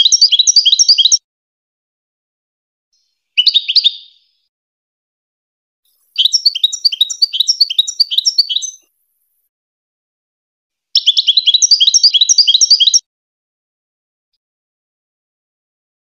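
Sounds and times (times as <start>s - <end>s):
goldfinch singing: 0.0s - 1.2s, 3.0s - 4.3s, 5.9s - 9.5s, 11.0s - 13.0s.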